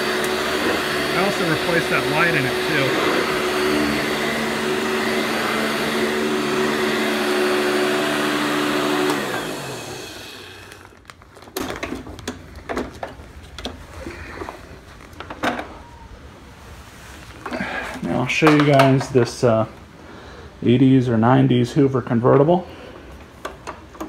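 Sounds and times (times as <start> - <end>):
vacuum motor spinning down: 0.0 - 10.9
upright vacuum motor whine: 0.0 - 11.0
knocks and clatters of handling: 11.0 - 15.8, 18.4 - 19.1.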